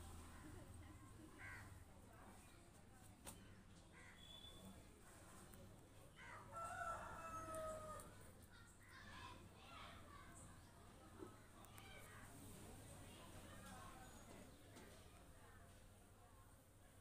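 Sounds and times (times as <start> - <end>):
faint short bird calls: 4.0 - 4.8
rooster crowing: 6.5 - 8.0.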